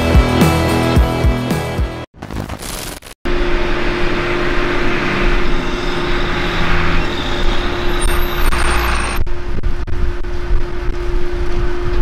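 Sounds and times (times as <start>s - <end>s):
steady mechanical hum: 3.3s - 12.0s.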